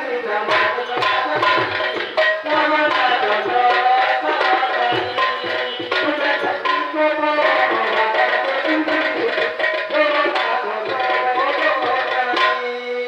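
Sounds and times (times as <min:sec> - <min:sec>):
sustained melodic accompaniment: 0:00.5 - 0:08.4
hand drum rhythm: 0:00.5 - 0:13.0.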